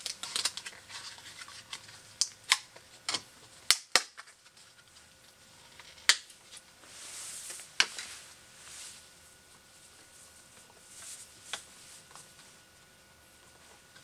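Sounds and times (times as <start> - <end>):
plastic packaging snapping: 0.0 - 4.4.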